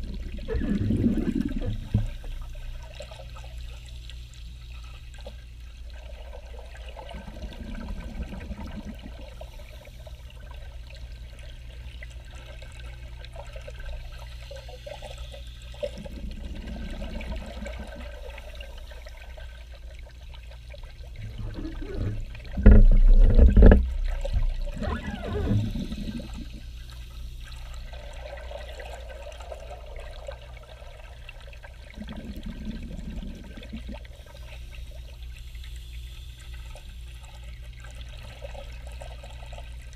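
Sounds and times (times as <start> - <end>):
gurgling exhaled bubbles: 0.0 - 3.5, 5.9 - 14.3, 15.7 - 35.1
steady low hum: 0.0 - 39.9.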